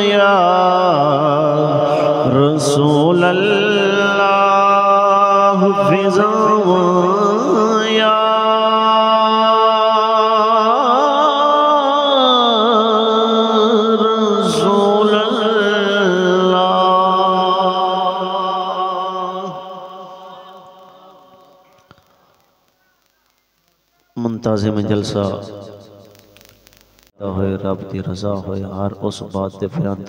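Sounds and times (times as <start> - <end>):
man singing into a microphone: 0.0 - 21.7.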